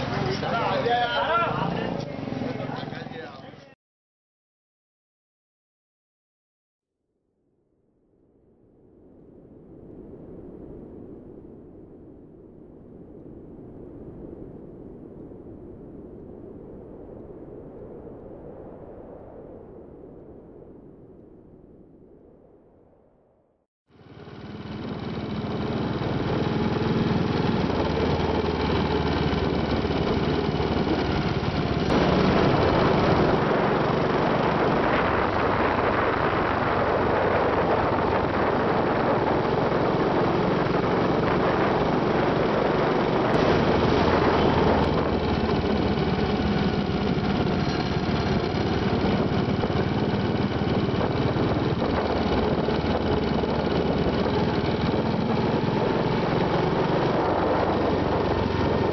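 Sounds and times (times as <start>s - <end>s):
motorcycle engine running: 0.0s - 2.9s, 24.0s - 35.8s, 36.5s - 58.9s
wind and road rushing: 24.0s - 58.9s.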